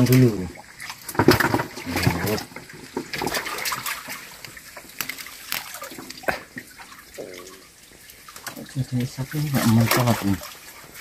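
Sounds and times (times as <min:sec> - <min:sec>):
hands splashing in muddy water: 0:00.0 - 0:07.6
water dripping: 0:00.0 - 0:11.0.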